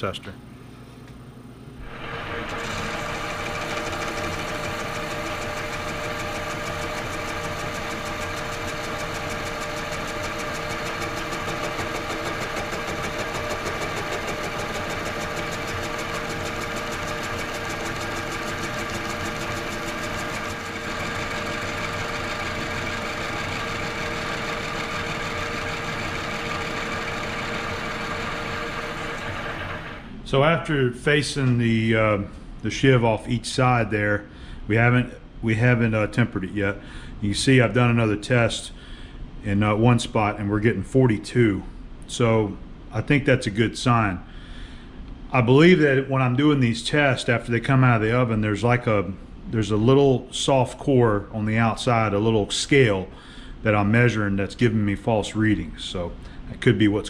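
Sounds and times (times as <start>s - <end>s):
lathe whining while cutting steel: 1.8s - 30.1s.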